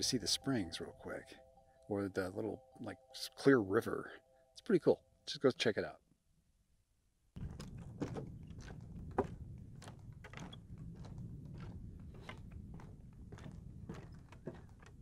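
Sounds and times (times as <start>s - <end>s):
footsteps on wooden boardwalk: 7.4s - 15.0s.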